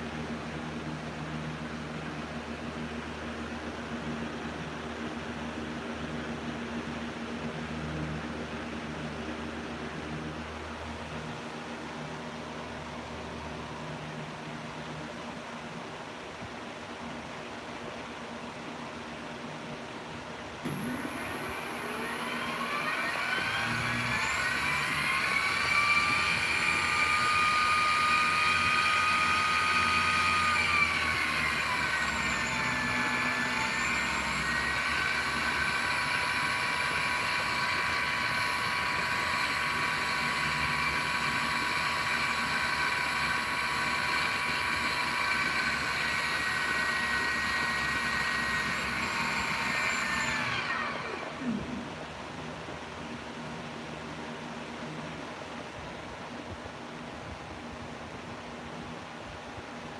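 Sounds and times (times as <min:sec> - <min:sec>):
electric motor whining: 0:20.6 - 0:52.0
thin high-pitched whine: 0:20.6 - 0:52.4.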